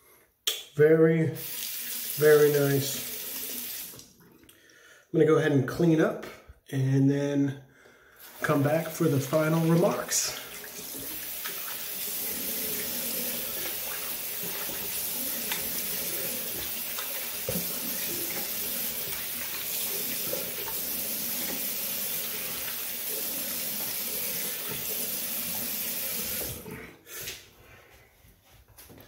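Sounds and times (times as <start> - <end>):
sink tap running: 1.4 - 4.1, 8.2 - 26.7.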